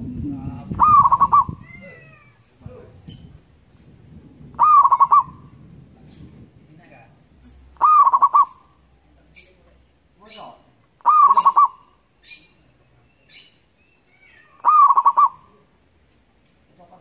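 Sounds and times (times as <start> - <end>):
dove cooing: 0.0 - 1.6, 4.6 - 5.6, 7.8 - 8.7, 11.0 - 11.8, 14.6 - 15.5
faint high chirps: 10.3 - 15.6.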